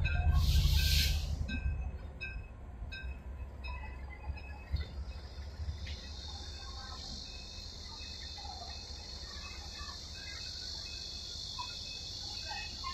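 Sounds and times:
high-pitched insect drone: 0:05.1 - 0:12.9.

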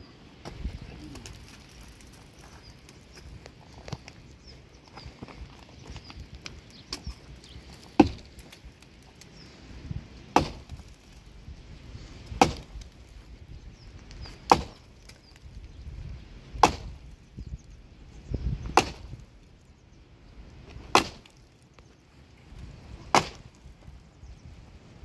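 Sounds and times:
sledgehammer striking tree trunk: 0:07.8 - 0:08.4, 0:10.3 - 0:11.0, 0:12.2 - 0:12.9, 0:14.4 - 0:14.9, 0:16.6 - 0:17.1, 0:18.6 - 0:19.2, 0:20.8 - 0:21.4, 0:23.1 - 0:23.6.

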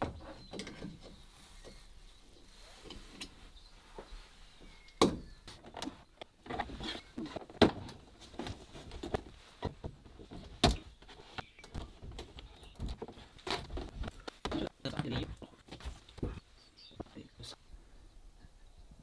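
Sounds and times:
plastic panels prying clicks and scrapes: 0:05.0 - 0:15.2.

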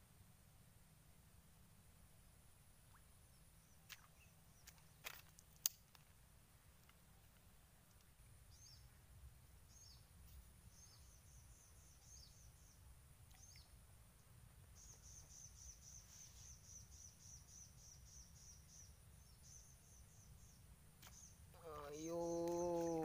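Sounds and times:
faint bird chirps: 0:08.5 - 0:09.0, 0:09.6 - 0:13.8, 0:14.7 - 0:23.0.

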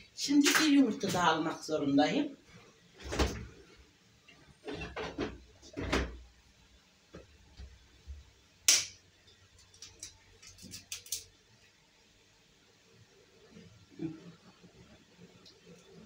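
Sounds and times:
egg cracking over a pot: 0:08.7 - 0:11.4.

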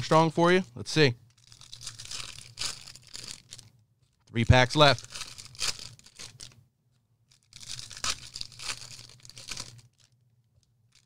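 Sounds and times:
foil wrappers tearing and crinkling: 0:01.3 - 0:06.6, 0:07.3 - 0:10.2.

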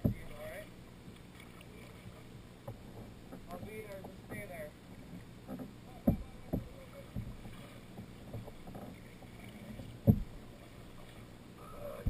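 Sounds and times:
dull knocks: 0:00.0 - 0:00.4, 0:05.1 - 0:10.4
paddle strokes in water: 0:00.0 - 0:12.0.

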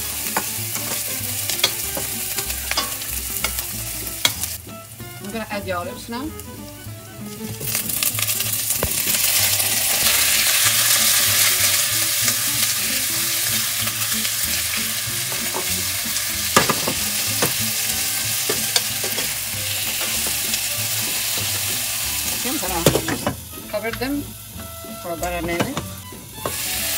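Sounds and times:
olives sizzling in oil: 0:00.0 - 0:26.9
metal spoon knocking pan: 0:00.2 - 0:04.6, 0:16.5 - 0:21.6, 0:22.3 - 0:24.1, 0:25.2 - 0:26.7.

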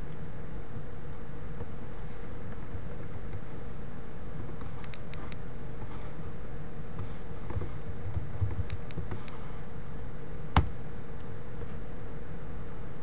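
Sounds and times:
background hum and hiss: 0:00.0 - 0:13.0
keyboard and mouse clicks: 0:04.6 - 0:05.4, 0:07.4 - 0:09.4.

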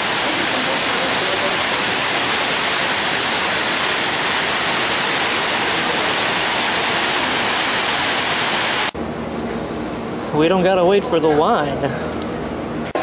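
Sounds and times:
waterfall splashing over stone: 0:00.0 - 0:09.0.

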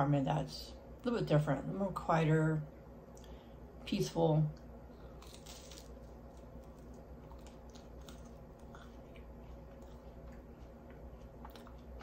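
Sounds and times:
chewing toast: 0:05.1 - 0:12.0.

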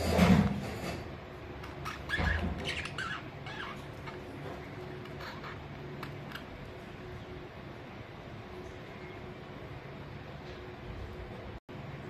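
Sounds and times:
budgerigars chirping: 0:01.6 - 0:04.3, 0:05.1 - 0:06.5.

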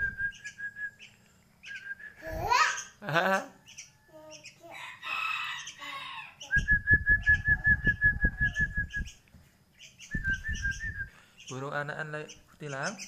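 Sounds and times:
short high bird chirps: 0:09.8 - 0:11.7.

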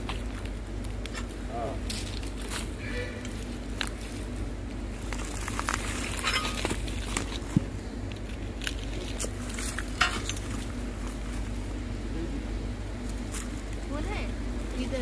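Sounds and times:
metal tools scraping stones: 0:05.8 - 0:06.8.

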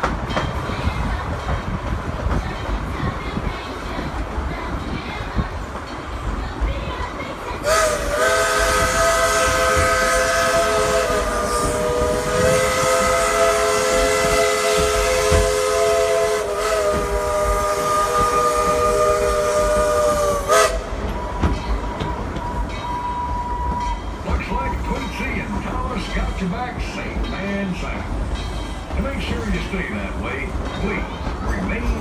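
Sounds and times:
steam locomotive whistle: 0:07.6 - 0:21.6, 0:22.3 - 0:24.0.

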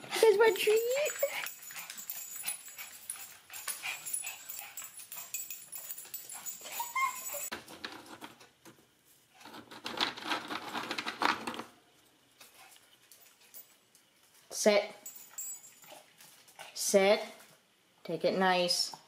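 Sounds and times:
dogs whining: 0:05.9 - 0:07.5.

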